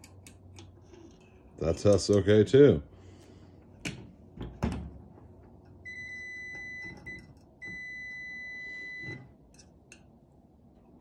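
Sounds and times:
meter continuity beep: 0:05.8 - 0:09.3.

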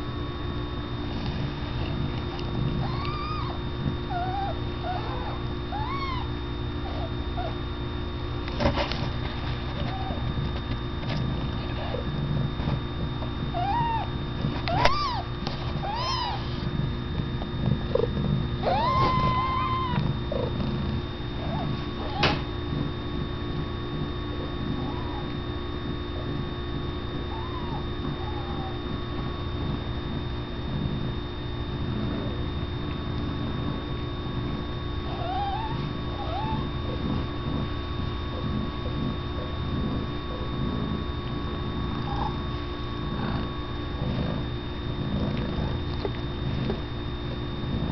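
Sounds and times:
steady low rumble: 0:00.0 - 0:47.9
kittens mewing: 0:01.9 - 0:07.8, 0:09.7 - 0:10.3, 0:13.4 - 0:16.7, 0:17.9 - 0:22.5, 0:27.2 - 0:29.0, 0:35.0 - 0:44.3.

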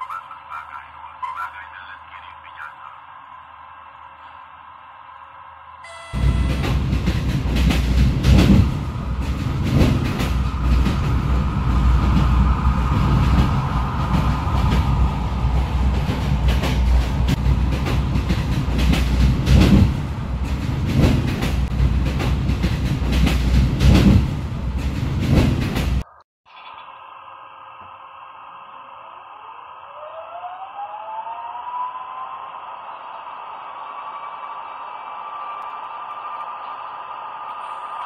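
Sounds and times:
train rumble: 0:00.0 - 0:26.2.

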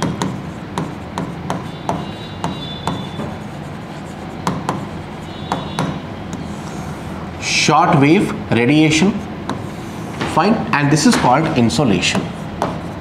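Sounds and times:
marker tapping whiteboard: 0:00.0 - 0:06.4, 0:09.4 - 0:10.4, 0:11.1 - 0:13.0
marker squeaking on whiteboard: 0:00.0 - 0:07.2.

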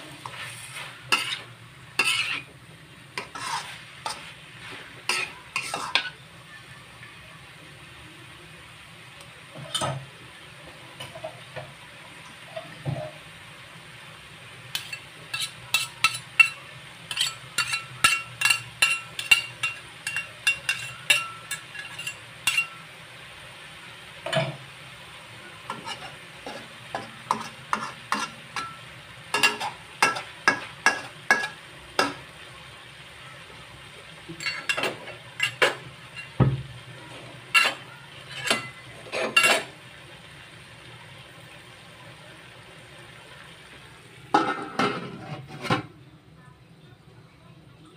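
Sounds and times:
spatula scraping metal wok: 0:00.0 - 0:06.2, 0:14.7 - 0:22.9, 0:25.7 - 0:32.2, 0:34.3 - 0:36.4, 0:37.0 - 0:39.8, 0:44.4 - 0:45.9
faint frying sizzle: 0:00.0 - 0:47.9.

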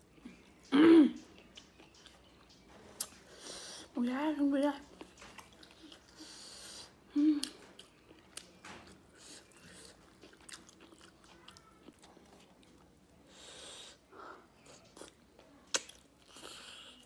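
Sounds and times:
chewing: 0:00.1 - 0:03.9, 0:04.8 - 0:17.0
wet mouth clicks and smacks: 0:15.7 - 0:16.1.

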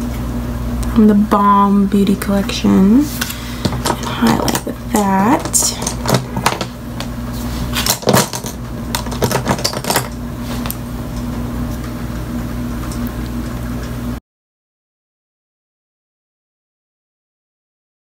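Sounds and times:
steady low hum: 0:00.0 - 0:14.2.

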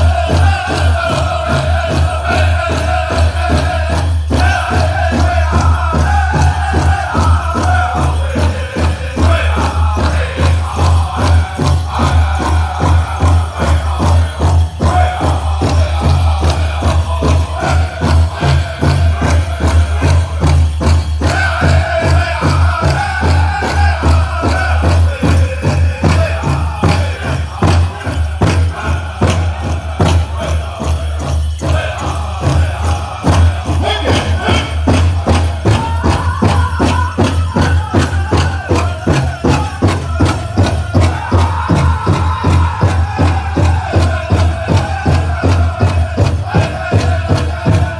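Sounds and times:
bells jingling: 0:00.0 - 0:47.9
group singing: 0:00.0 - 0:47.9
large drum steady beat: 0:00.0 - 0:47.9.

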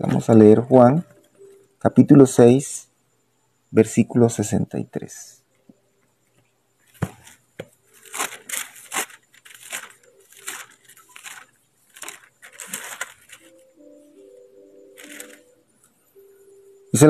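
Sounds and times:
pages being leafed through: 0:06.9 - 0:14.3, 0:14.9 - 0:15.6.

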